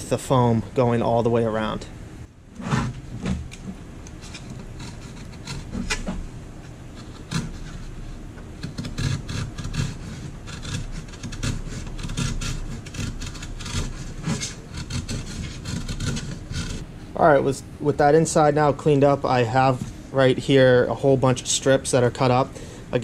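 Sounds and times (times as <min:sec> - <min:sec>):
knife scraping cuts on fiberglass: 0:02.6 - 0:08.0, 0:08.6 - 0:16.8.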